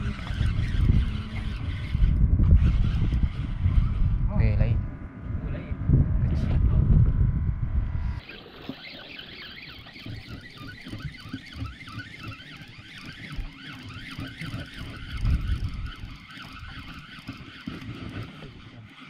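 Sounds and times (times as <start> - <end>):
fishing reel whirring: 0.0 - 4.8, 7.6 - 19.0
low rumble: 0.0 - 8.3.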